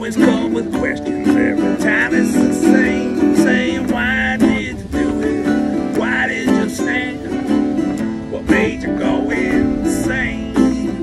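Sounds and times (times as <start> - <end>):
acoustic guitars strummed: 0.0 - 11.0
man singing: 0.0 - 11.0.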